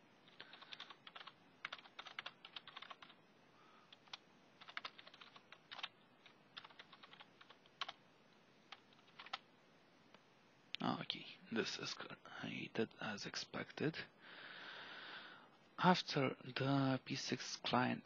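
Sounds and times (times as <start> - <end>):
faint keyboard typing: 0.2 - 3.2, 3.8 - 9.5.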